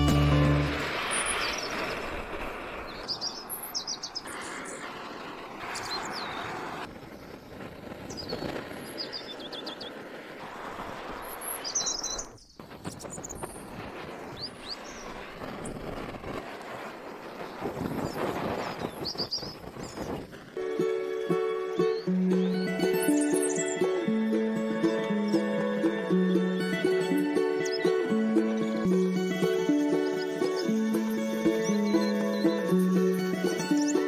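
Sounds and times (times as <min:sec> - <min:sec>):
torch flame hissing: 0:00.2 - 0:22.2
small birds chirping: 0:01.0 - 0:07.4, 0:08.0 - 0:10.0, 0:11.2 - 0:15.3, 0:17.4 - 0:34.0.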